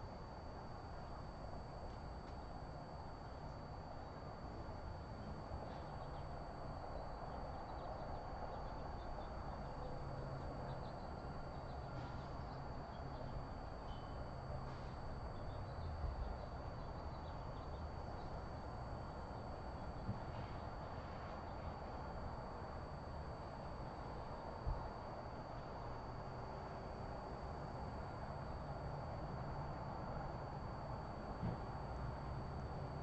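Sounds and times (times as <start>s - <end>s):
faint high-pitched whine: 0.0s - 33.0s
low hum: 0.0s - 33.0s.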